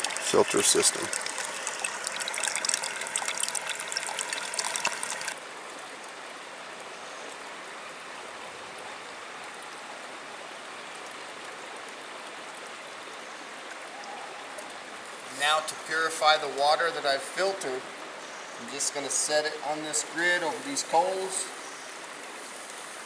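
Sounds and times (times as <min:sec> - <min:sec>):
water trickling into pot: 0:00.0 - 0:05.4
steady quiet hiss: 0:05.3 - 0:23.0.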